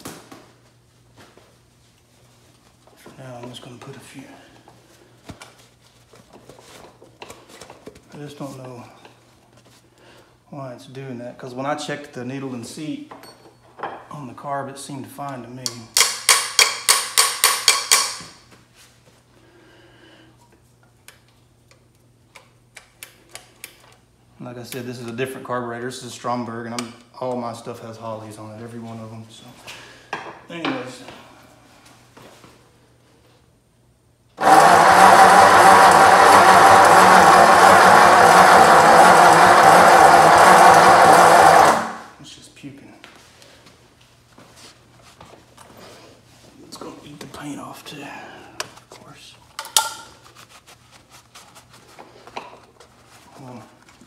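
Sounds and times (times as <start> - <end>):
starter motor cranking engine: 34.4 - 42.1.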